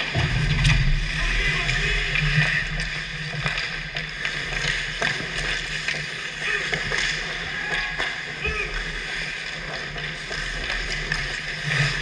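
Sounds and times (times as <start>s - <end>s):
low hum: 0.0s - 6.4s
skates scraping on ice: 0.0s - 12.0s
sticks and puck clacking: 1.4s - 12.0s.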